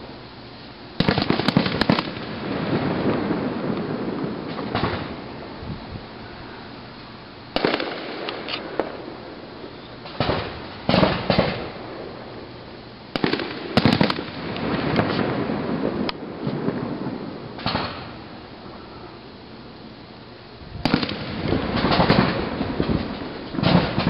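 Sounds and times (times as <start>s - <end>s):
fireworks bangs with echo: 1.0s - 5.4s, 7.5s - 12.4s, 13.1s - 18.4s, 20.8s - 24.0s.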